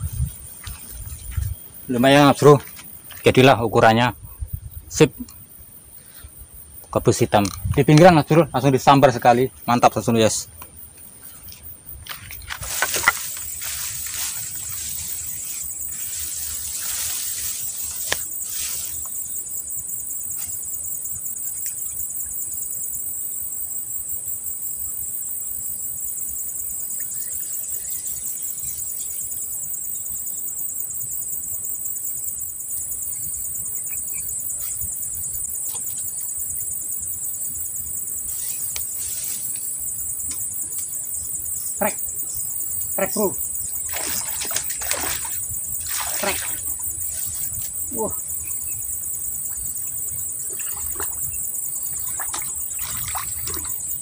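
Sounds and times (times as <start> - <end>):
insects buzzing: 0.0 - 54.0
rustling: 11.4 - 19.2, 38.3 - 40.5.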